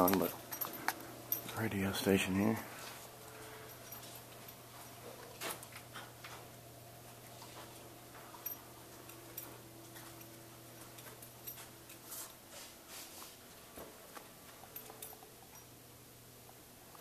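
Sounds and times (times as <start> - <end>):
low electrical hum: 0.0 - 17.0
soft rustles: 10.8 - 14.9.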